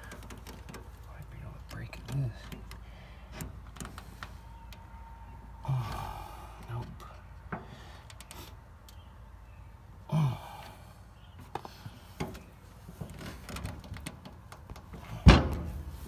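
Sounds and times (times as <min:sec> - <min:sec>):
man straining exhale: 0:05.6 - 0:06.7, 0:10.1 - 0:11.1.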